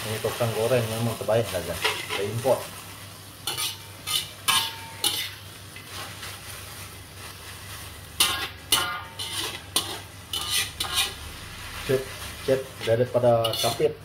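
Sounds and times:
low sizzle: 0.0 - 14.0
metal spatula scraping a wok: 1.8 - 2.5, 3.4 - 6.8, 8.2 - 14.0.

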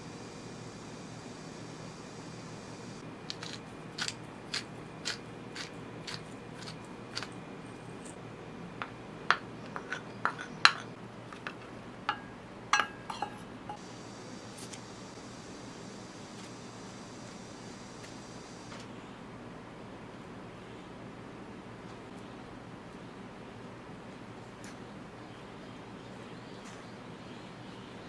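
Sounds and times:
utensils tapping ceramic bowl: 8.8 - 13.8
container knocking bowl: 10.3 - 13.4.

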